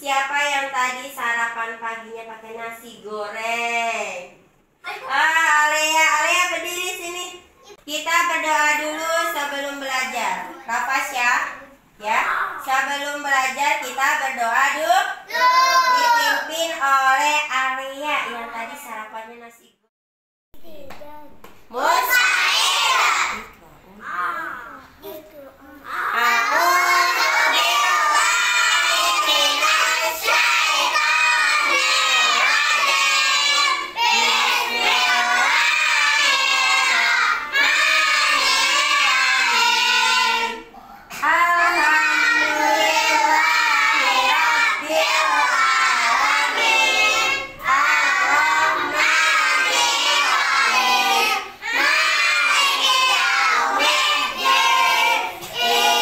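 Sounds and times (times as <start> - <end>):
children chanting in unison: 15.3 - 16.4, 21.9 - 23.4, 26.1 - 40.7, 41.6 - 56.0.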